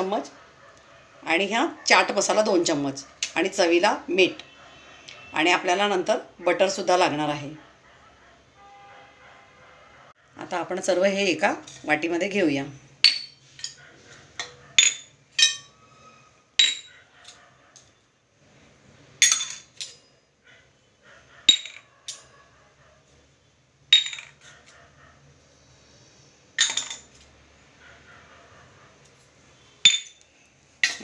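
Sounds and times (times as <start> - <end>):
spoon clinking on steel bowl: 21.5 - 21.8.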